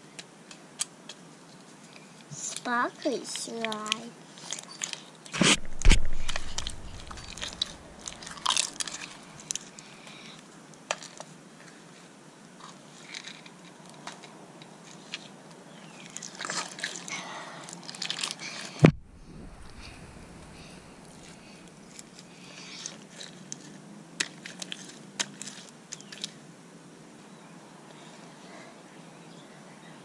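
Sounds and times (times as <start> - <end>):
loud thump: 5.4 - 8.6, 18.8 - 21.3
slime squishing: 5.4 - 9.7.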